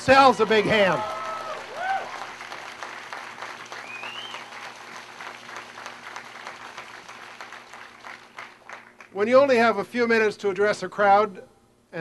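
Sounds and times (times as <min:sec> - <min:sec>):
crowd applauding: 0:00.0 - 0:09.2.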